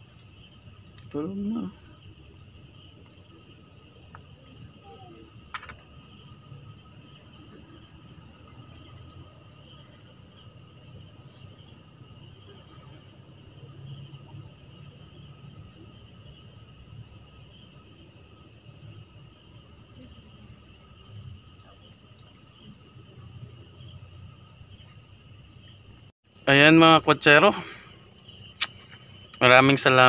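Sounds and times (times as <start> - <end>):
crickets chirping: 0.0 - 30.0
sharp click: 5.5 - 5.8, 28.6 - 29.0.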